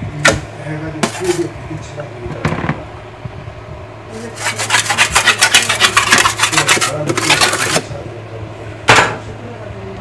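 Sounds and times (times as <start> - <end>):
metal scraper on granite: 1.0 - 1.4, 4.4 - 7.9.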